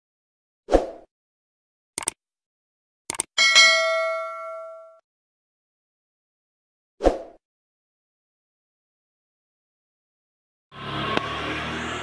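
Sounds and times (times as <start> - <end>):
quick double click: 2.0 - 2.2, 3.1 - 3.3
notification bell chime: 3.4 - 5.0.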